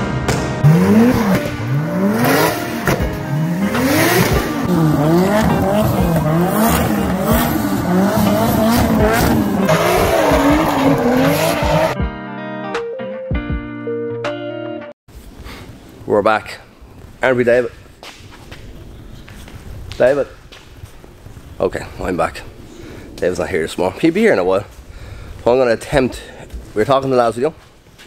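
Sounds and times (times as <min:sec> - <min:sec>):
car engine revving: 0:00.3 - 0:12.0
tyres squealing: 0:04.7 - 0:12.0.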